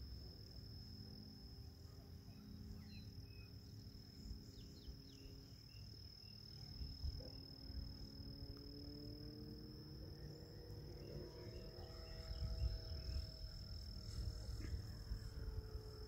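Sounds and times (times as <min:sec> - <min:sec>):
crickets trilling: 0:00.0 - 0:16.0
distant model plane motor: 0:06.8 - 0:16.0.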